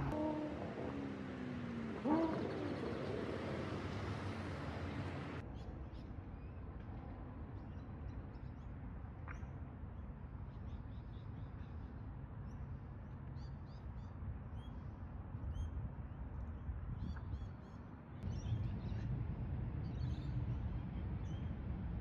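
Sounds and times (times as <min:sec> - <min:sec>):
low outdoor rumble: 0:00.0 - 0:05.4, 0:18.2 - 0:22.0
small birds chirping: 0:01.3 - 0:05.4.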